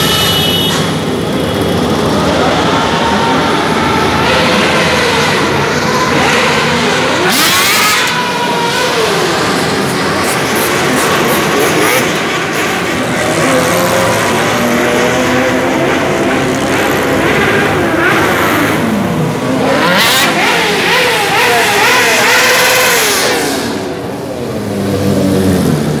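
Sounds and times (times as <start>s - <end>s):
motorcycles and scooters passing: 0.9s - 19.7s.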